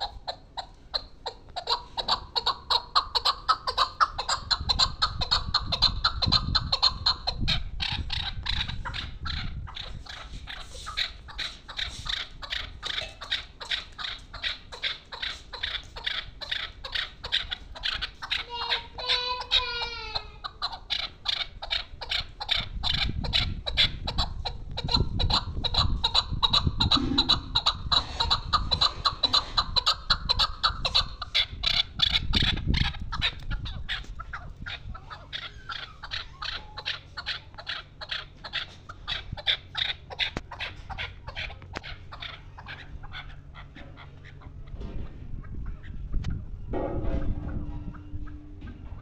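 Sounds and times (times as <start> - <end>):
partridge clucking calls: 0.0 - 49.0
low rumble: 44.5 - 49.0.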